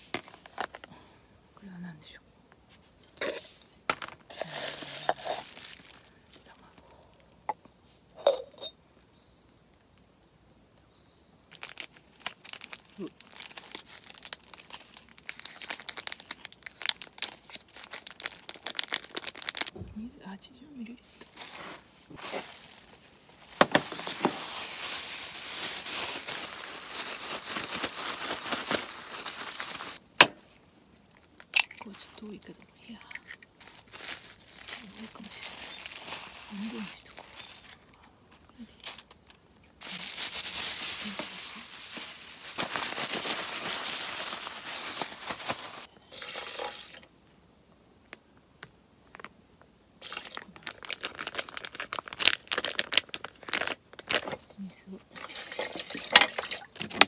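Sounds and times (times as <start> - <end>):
plastic bag crinkling: 3.2 - 7.0, 11.5 - 19.8, 21.0 - 47.1, 50.0 - 54.5.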